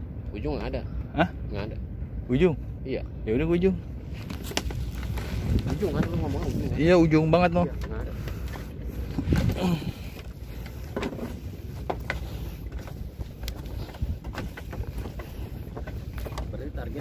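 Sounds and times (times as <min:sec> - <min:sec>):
footsteps on bamboo walkway: 0:04.1 - 0:06.6, 0:07.7 - 0:17.0.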